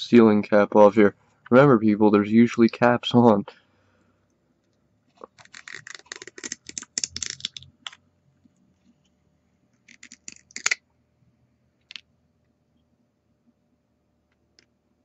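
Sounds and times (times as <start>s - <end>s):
plastic cap clicking and scraping: 5.2s - 8.0s, 9.8s - 10.8s.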